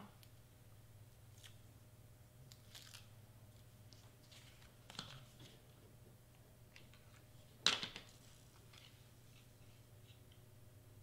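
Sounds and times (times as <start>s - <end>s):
faint low hum: 0.0s - 11.0s
soft rustles and clicks: 6.7s - 10.4s.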